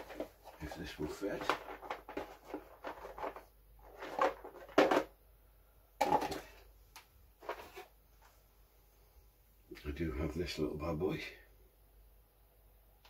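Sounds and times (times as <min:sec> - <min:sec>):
small objects clattering: 0:00.0 - 0:05.2, 0:06.0 - 0:06.6, 0:07.4 - 0:07.9.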